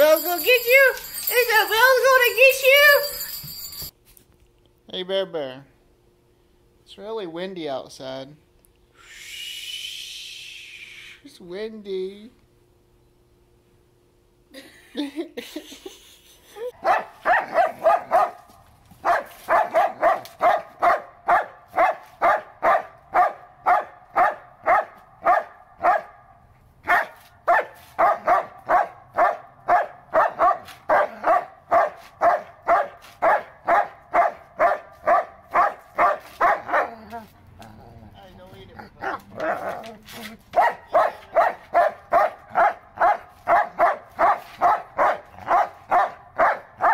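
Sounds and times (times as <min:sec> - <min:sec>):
dog barking: 0:16.8 - 0:37.1, 0:39.0 - 0:39.8, 0:40.5 - 0:46.9.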